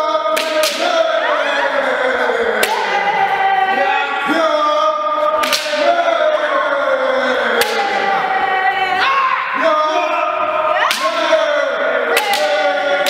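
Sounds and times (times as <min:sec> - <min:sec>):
people shouting drawn-out calls: 0:00.0 - 0:13.0
bamboo swords striking: 0:00.4 - 0:00.9, 0:05.4 - 0:05.8, 0:12.2 - 0:12.6.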